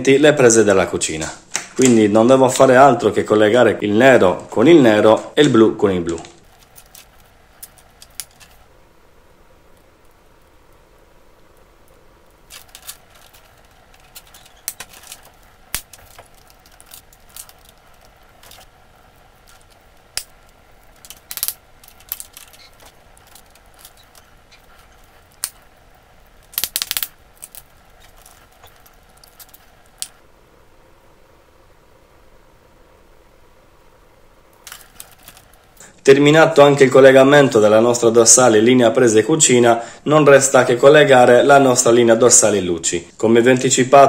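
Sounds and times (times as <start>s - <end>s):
small clicks and rustles: 6.0s - 8.7s, 11.5s - 30.3s, 34.5s - 35.9s.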